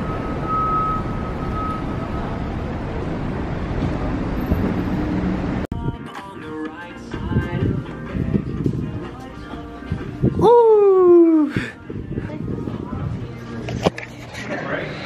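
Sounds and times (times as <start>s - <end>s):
city traffic rumble: 0.0s - 15.0s
background music: 5.7s - 15.0s.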